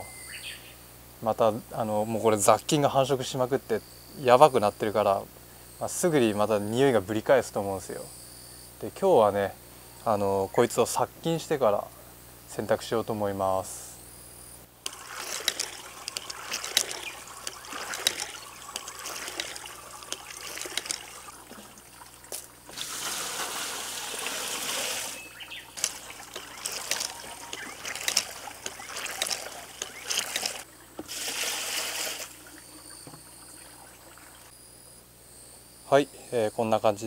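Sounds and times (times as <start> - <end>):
water pouring into metal pot: 14.8 - 34.5.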